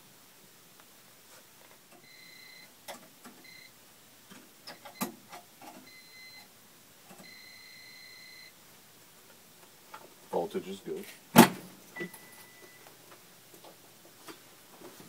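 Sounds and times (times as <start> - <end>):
voltage tester beeping: 2.0 - 2.7, 3.4 - 3.7, 5.9 - 6.5, 7.2 - 8.5, 12.0 - 12.9.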